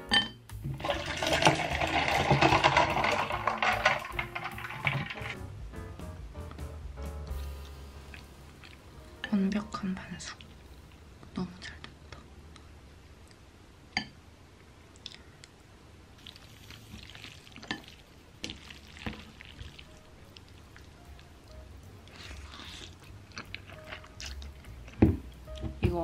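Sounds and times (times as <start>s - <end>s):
wet squishing of noodles: 16.1s - 25.6s.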